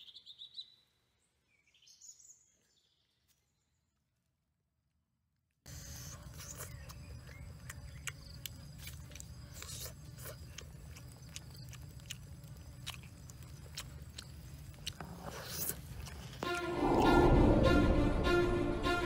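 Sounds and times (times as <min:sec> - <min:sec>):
chewing clicks: 0:05.9 - 0:16.7
low rumble: 0:16.6 - 0:19.0.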